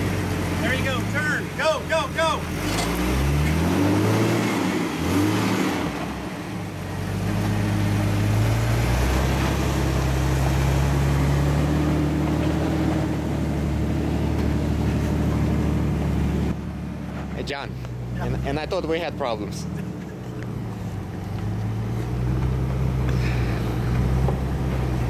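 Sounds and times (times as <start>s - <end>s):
car engine revving: 0.0s - 25.0s.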